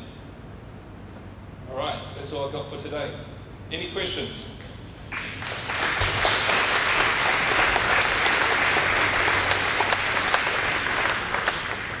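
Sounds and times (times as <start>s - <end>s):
audience clapping: 5.1s - 12.0s.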